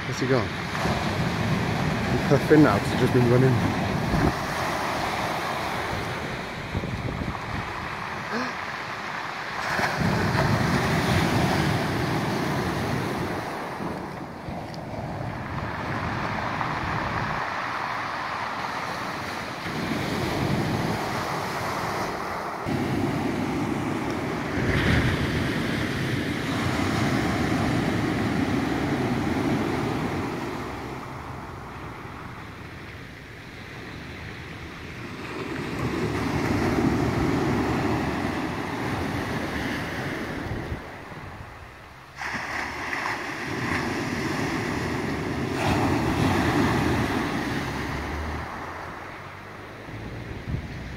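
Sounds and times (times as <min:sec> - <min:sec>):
waves breaking on shingle: 0:00.4 - 0:31.3.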